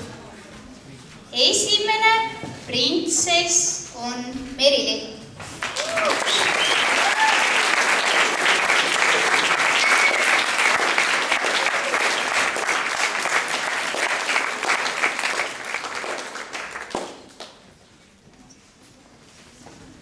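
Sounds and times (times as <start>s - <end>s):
audience applauding: 5.6s - 17.6s.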